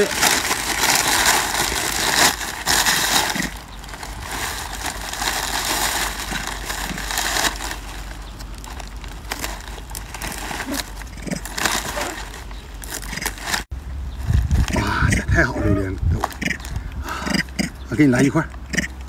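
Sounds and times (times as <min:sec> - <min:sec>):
plastic and paper crinkling: 0:00.0 - 0:14.7.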